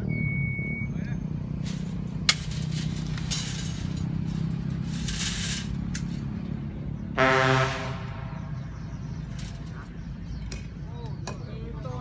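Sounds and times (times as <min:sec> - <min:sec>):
metal wire scraping and clinking: 0:01.6 - 0:06.3.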